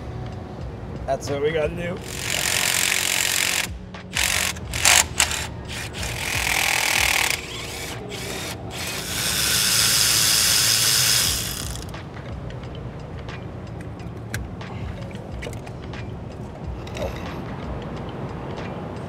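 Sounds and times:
power tool running: 0:02.0 - 0:11.9.

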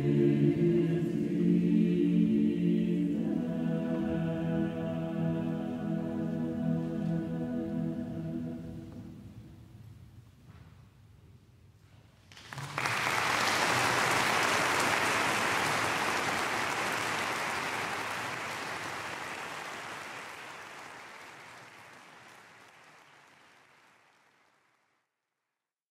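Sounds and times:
audience applause: 0:12.3 - 0:24.8.

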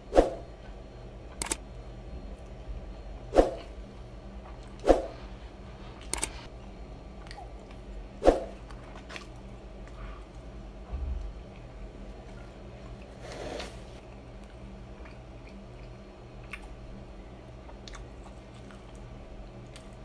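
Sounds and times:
low hum: 0:00.0 - 0:20.0
man chewing food: 0:05.9 - 0:20.0.

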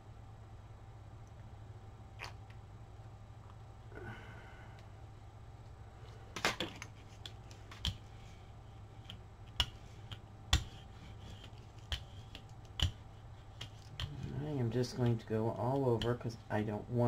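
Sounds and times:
steady low hum: 0:00.0 - 0:17.0
paint supplies clicking and tapping: 0:09.0 - 0:14.1.

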